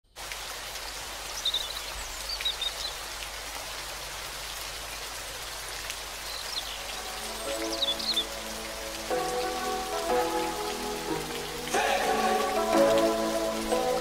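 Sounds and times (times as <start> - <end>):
steady rain-like hiss: 0.1 - 14.0
high bird chirps: 6.3 - 8.4.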